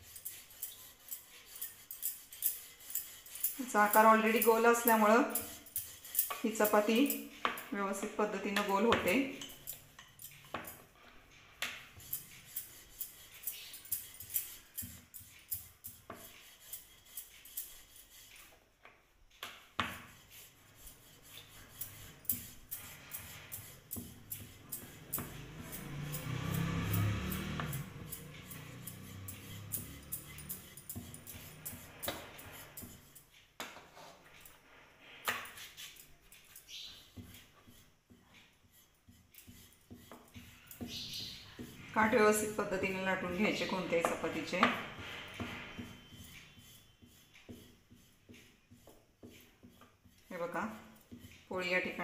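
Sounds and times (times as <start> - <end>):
rolling pin on wooden board: 14.0 - 34.3, 35.2 - 51.6.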